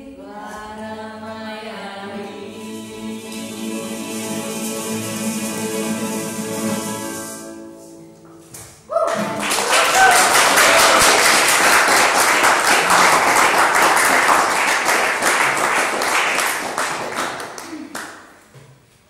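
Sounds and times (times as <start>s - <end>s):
audience applauding: 9.0s - 18.3s.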